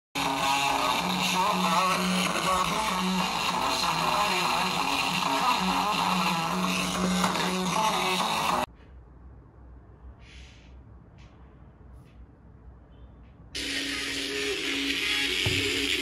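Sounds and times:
music through small speaker: 0:00.2 - 0:08.7, 0:13.6 - 0:16.0.

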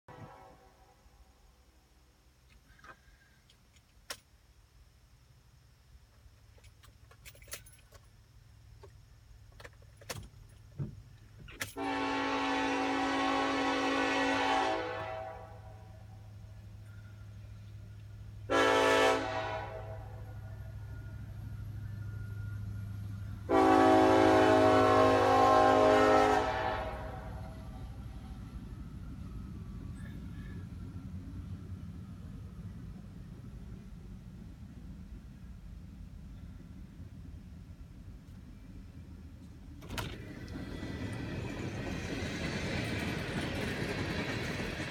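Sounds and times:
locomotive air horn: 0:00.1 - 0:01.1, 0:11.7 - 0:16.1, 0:18.4 - 0:20.4, 0:23.4 - 0:27.9
light clicks and jingles: 0:06.1 - 0:08.2
diesel locomotive rumble: 0:08.1 - 0:44.9.

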